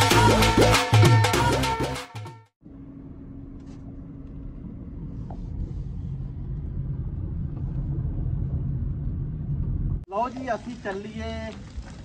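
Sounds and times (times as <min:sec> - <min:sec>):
car road and engine rumble: 0:02.6 - 0:10.6.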